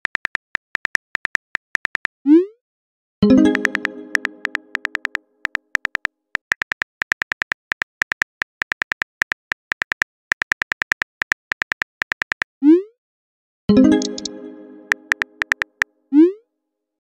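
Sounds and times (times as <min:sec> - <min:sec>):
phone keyboard typing clicks: 0:00.0 - 0:02.1, 0:03.4 - 0:12.5, 0:13.9 - 0:15.9
tone: 0:03.2 - 0:05.2, 0:13.7 - 0:15.8.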